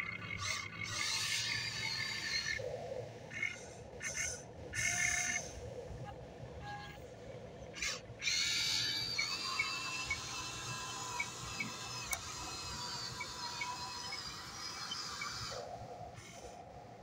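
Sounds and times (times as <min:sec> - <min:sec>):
small electric motors whining: 0:00.0 - 0:02.6, 0:07.8 - 0:17.0.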